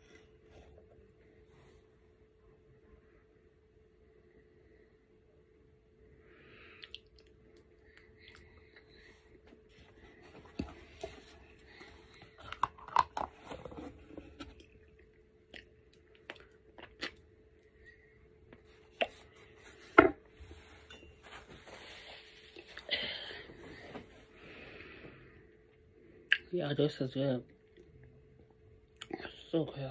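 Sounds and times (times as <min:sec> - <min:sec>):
chewing and wet mouth noises: 0:06.8 - 0:09.0, 0:14.9 - 0:17.3.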